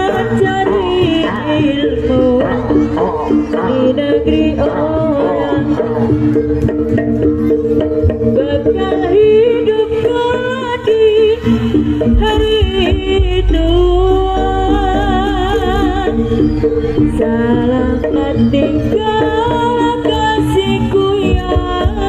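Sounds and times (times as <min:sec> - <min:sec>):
person singing wavering: 0:00.0 - 0:06.3
gamelan music: 0:00.0 - 0:22.0.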